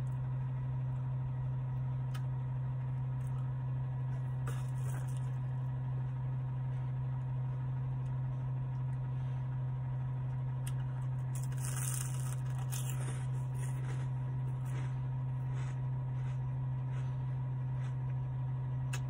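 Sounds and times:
ice cream cone crunching: 4.4 - 5.5, 10.6 - 18.2.

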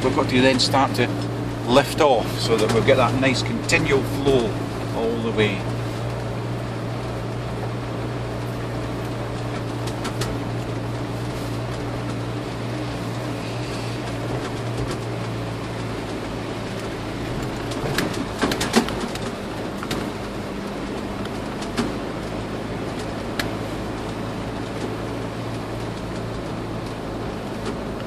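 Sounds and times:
vehicle engine from inside cab: 0.0 - 28.0
vehicle knocks and rattles: 0.0 - 28.0.

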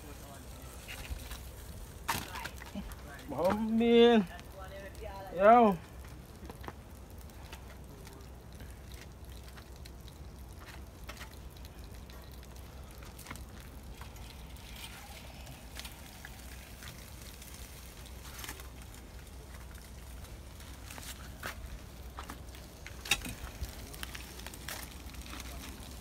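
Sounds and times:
fire crackling and popping: 0.0 - 26.0
low steady rumble: 0.0 - 26.0.

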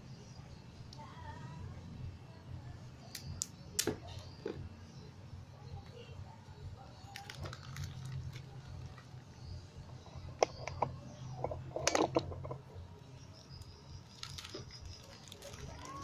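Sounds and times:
plastic and cardboard crinkling: 7.0 - 9.1, 14.0 - 16.0
rustling packaging: 7.0 - 9.1, 14.0 - 16.0.

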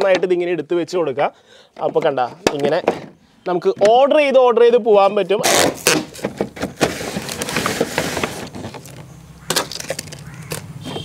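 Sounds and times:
plastic bottles knocking and crinkling: 0.0 - 0.5, 1.7 - 4.3, 5.4 - 11.0.

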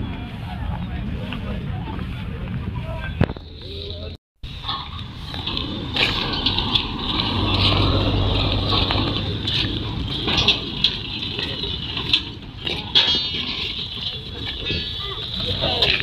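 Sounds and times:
street noise: 0.0 - 16.0
diesel truck engine humming: 4.5 - 12.6.

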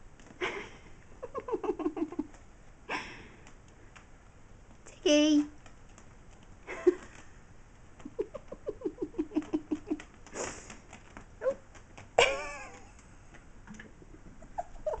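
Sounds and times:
claws ticking on curtain fabric: 3.4 - 12.2.

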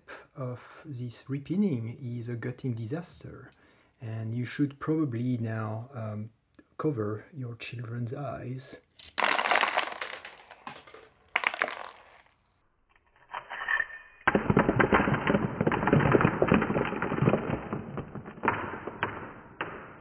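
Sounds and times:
lock pins clattering onto desk: 8.9 - 12.2.

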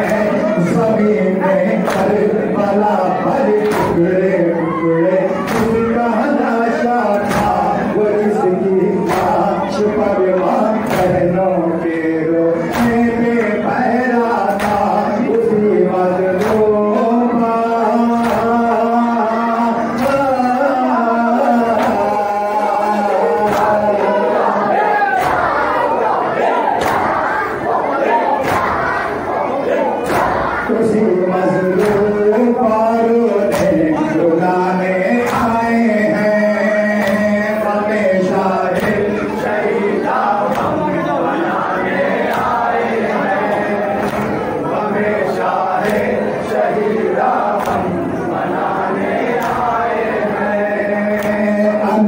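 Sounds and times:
man chanting a lament: 0.0 - 28.4, 29.1 - 52.0
crowd beating chests: 0.0 - 52.0
hands slapping on chests: 1.8 - 2.2, 14.5 - 15.0, 23.4 - 23.9, 25.2 - 25.7, 26.8 - 27.2, 28.4 - 29.0, 30.0 - 30.6, 37.0 - 37.3, 38.7 - 39.8, 40.4 - 40.9, 42.2 - 44.6, 45.8 - 48.1, 49.2 - 49.8, 51.2 - 51.4.

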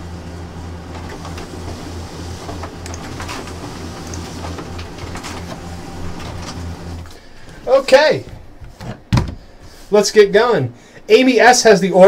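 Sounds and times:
pulsing mechanical hum: 0.0 - 8.8.

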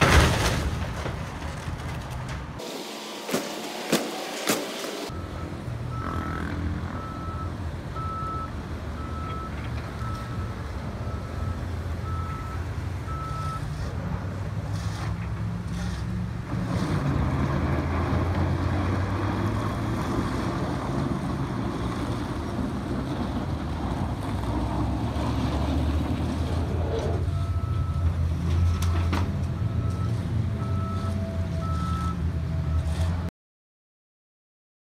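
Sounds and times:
heavy machine engines droning: 0.2 - 33.3
reversing alarm beeps: 5.1 - 6.4, 7.0 - 13.6, 27.3 - 29.0, 29.6 - 32.9.

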